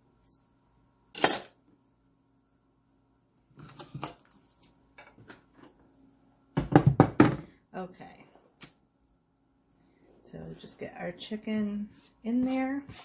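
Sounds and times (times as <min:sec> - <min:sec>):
cutting board knocking: 0:06.6 - 0:07.4.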